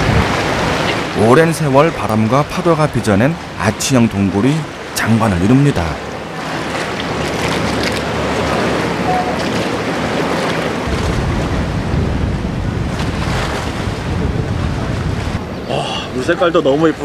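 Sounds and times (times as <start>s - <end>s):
wind buffeting microphone: 0.0s - 1.2s, 6.5s - 17.0s
water rushing: 0.0s - 17.0s.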